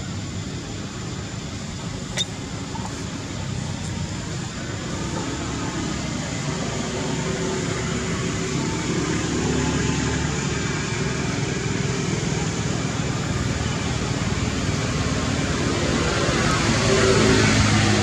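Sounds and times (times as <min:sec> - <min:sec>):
outdoor background noise: 0:00.0 - 0:18.0.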